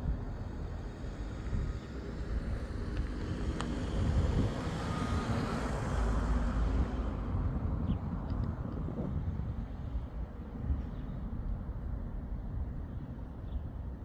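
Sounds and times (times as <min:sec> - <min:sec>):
road vehicle passing: 0:00.0 - 0:10.6
wind on microphone: 0:00.0 - 0:14.0.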